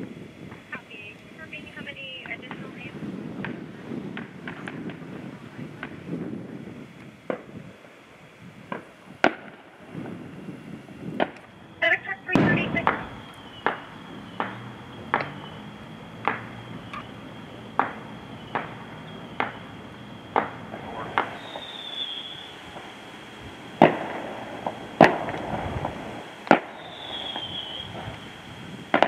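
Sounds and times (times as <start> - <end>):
distant fireworks bangs: 0.0 - 29.0
high falling whistles: 11.7 - 23.1, 26.6 - 28.2.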